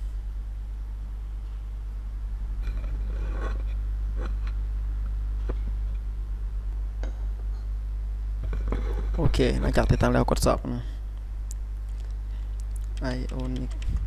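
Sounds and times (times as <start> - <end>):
low electrical hum: 0.0 - 14.0
faint clicks and rustles: 11.5 - 14.0.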